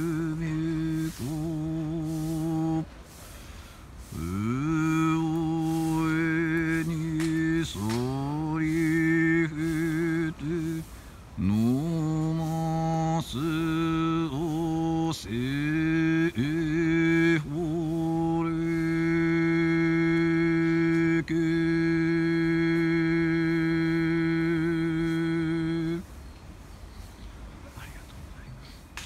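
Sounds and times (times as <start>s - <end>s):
man chanting held notes: 0.0s - 3.2s, 4.0s - 26.1s
quick breath: 2.1s - 4.3s.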